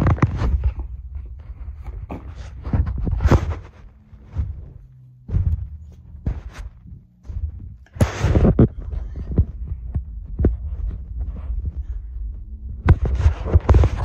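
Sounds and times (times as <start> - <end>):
bedding rustling: 0.0 - 14.0.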